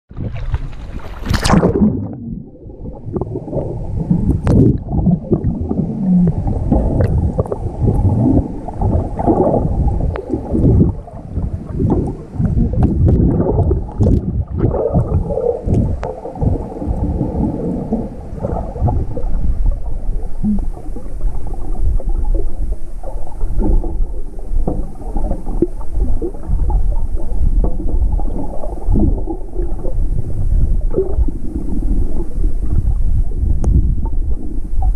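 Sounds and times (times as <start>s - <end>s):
splash: 0.1s - 2.3s
underwater churning and sloshing: 0.1s - 34.9s.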